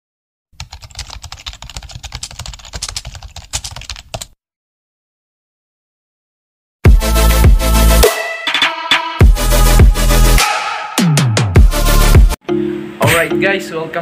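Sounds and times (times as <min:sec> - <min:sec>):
keyboard typing: 0:00.6 - 0:04.4.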